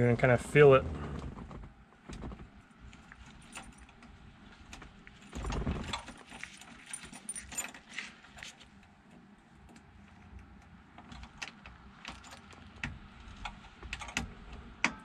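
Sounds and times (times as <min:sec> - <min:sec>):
keys jingling: 0:03.1 - 0:08.6
small metal clicks: 0:05.4 - 0:15.0.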